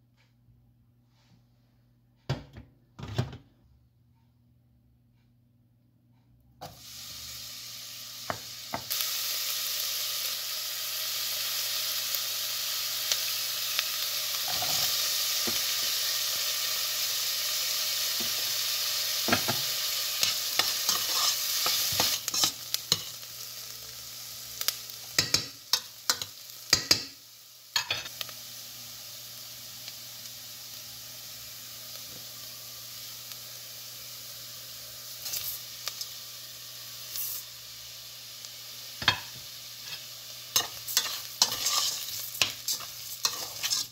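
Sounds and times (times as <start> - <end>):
vegetables sizzling in oil: 6.6 - 43.9
spoon scraping against pot: 20.2 - 23.1, 39.0 - 43.9.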